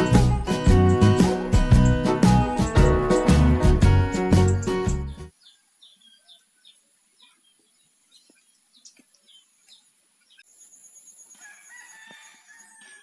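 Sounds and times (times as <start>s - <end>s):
bird chirps: 5.1s - 13.0s.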